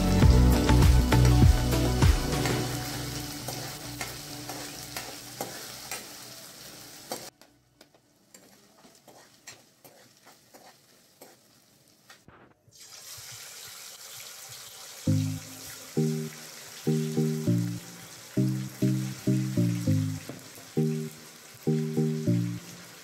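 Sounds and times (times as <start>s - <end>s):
onions sizzling in oil: 0.0s - 23.0s
metal spatula scraping pan: 2.3s - 6.1s, 8.4s - 11.5s.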